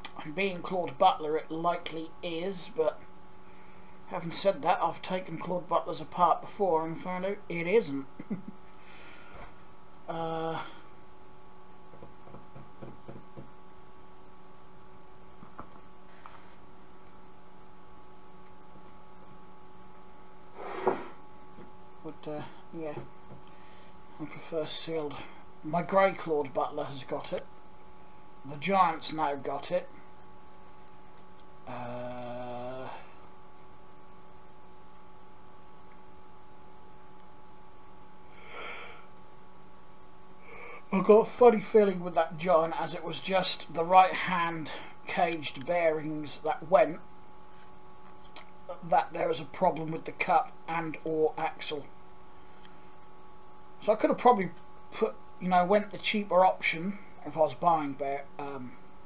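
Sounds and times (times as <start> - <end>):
electrical hum: 0.0 - 59.0
faint constant tones: 0.0 - 59.0
breath-like noise: 8.7 - 9.6, 20.5 - 21.2, 38.2 - 39.1.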